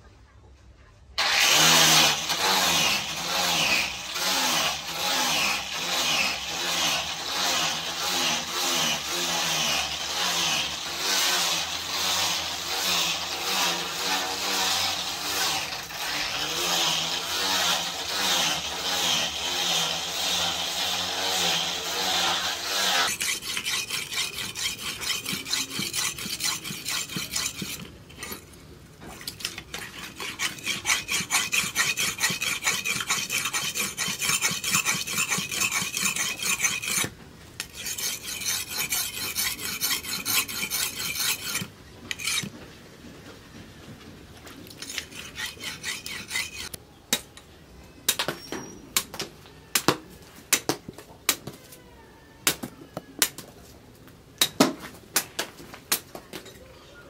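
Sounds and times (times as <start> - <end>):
blade scraping on sharpening stone: 22.7 - 28.5, 29.2 - 42.5, 44.8 - 46.8.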